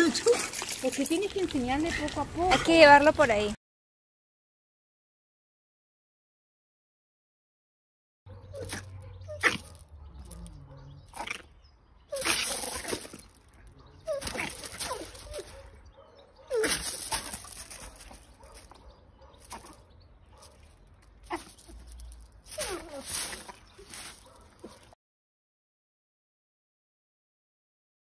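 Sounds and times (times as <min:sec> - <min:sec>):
dog vocalising: 0:08.3 - 0:17.5.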